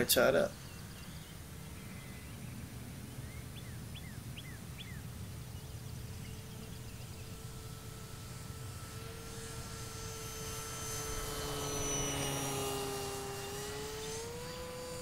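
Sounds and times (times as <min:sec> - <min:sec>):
bird chirping: 0:00.0 - 0:09.2
distant model airplane motor hum: 0:00.0 - 0:15.0.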